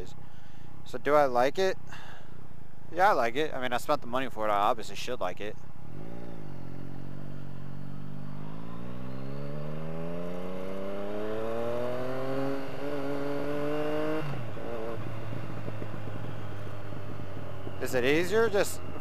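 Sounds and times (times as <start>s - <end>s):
motorcycle engine accelerating: 5.8s - 19.0s.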